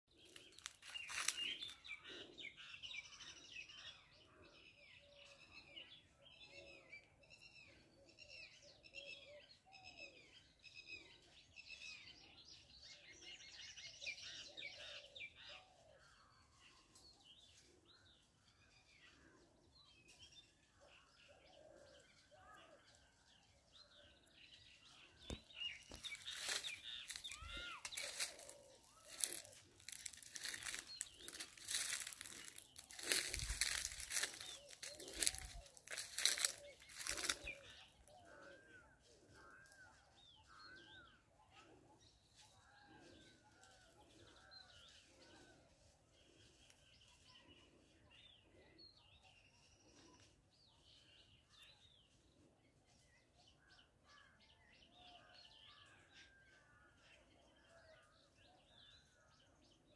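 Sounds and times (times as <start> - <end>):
birds chirping: 0.1 - 4.1, 23.8 - 52.3
dry leaves crunching: 0.2 - 1.9, 25.8 - 37.8.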